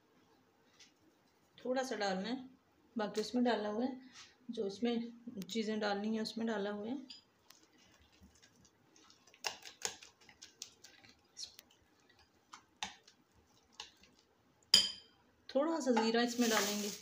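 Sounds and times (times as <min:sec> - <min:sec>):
metal spoon clinking on glass bowl: 0:14.8 - 0:15.1.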